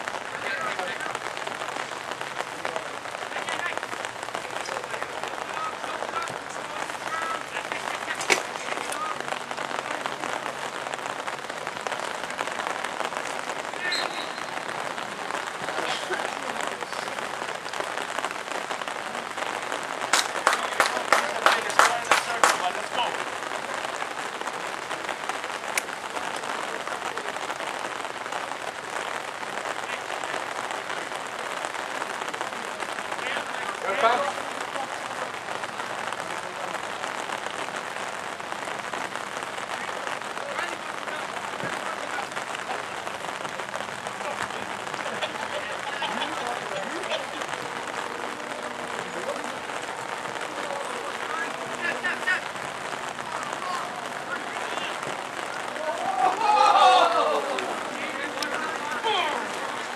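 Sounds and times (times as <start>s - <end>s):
rain patter: 0.0s - 59.9s
distant shouts: 12.6s - 15.9s, 44.2s - 59.9s.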